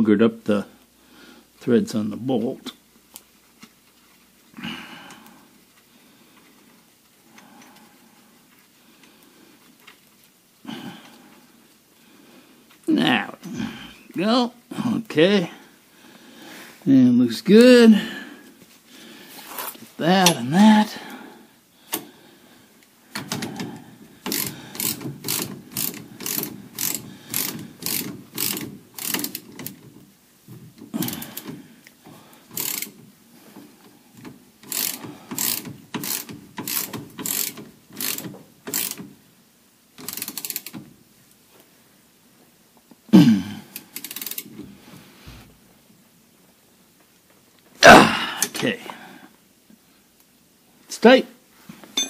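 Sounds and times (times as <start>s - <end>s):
ratchet wrench clicking: 24.2s - 29.9s, 32.5s - 33.0s, 34.6s - 39.1s, 40.0s - 40.8s, 43.8s - 44.5s.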